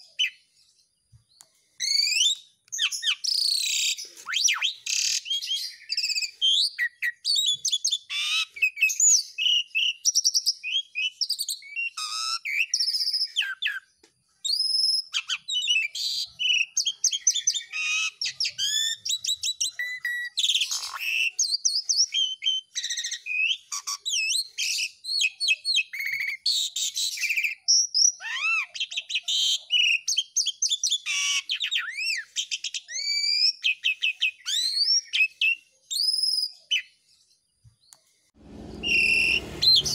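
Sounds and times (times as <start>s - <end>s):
starling singing varied whistles: 1.8s - 37.0s, 38.6s - 39.9s.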